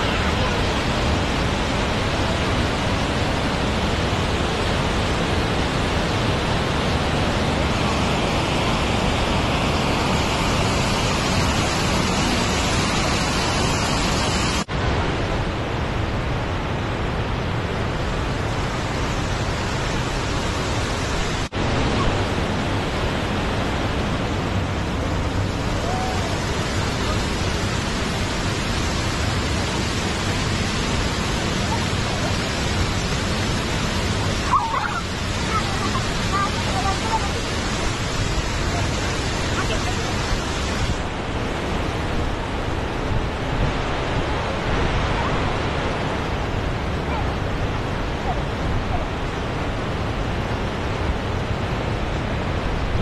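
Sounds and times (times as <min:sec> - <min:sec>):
loud steady rushing noise: 0:00.0 - 0:53.0.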